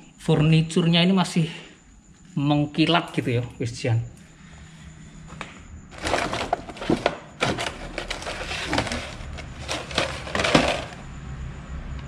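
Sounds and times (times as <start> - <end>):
wooden cabinet knocks and scrapes: 6.0 - 11.0.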